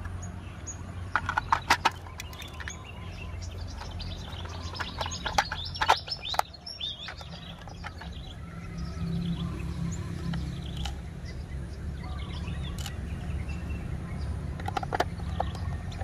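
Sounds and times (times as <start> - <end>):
small birds chirping: 0.0 - 16.0
plastic toy parts clicking: 1.1 - 3.0, 3.6 - 8.3, 10.2 - 11.0, 12.7 - 13.0, 14.6 - 16.0.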